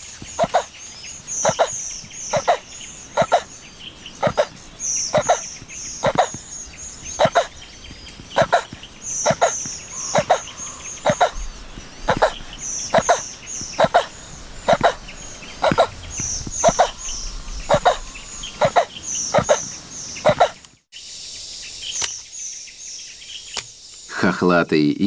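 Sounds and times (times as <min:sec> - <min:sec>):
high bird chirps: 0:00.0 - 0:24.0
tortoise grunting: 0:00.4 - 0:00.7, 0:01.4 - 0:03.5, 0:04.2 - 0:07.6, 0:08.3 - 0:19.6, 0:20.2 - 0:20.6.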